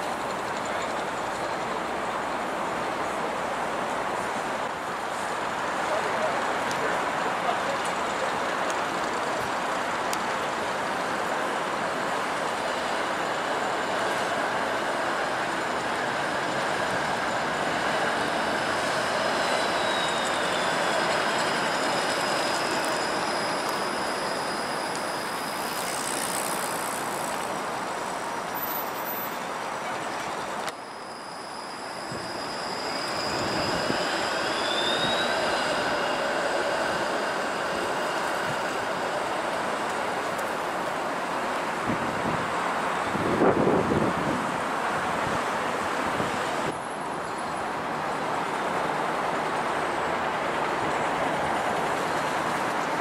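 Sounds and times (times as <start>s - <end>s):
streetcar high whine: 0.0s - 53.0s
streetcar rolling on rails: 0.0s - 53.0s.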